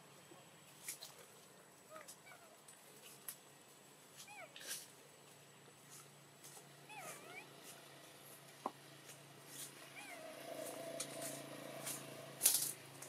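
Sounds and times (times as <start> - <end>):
sharp rustle: 4.1 - 5.1, 9.0 - 12.8.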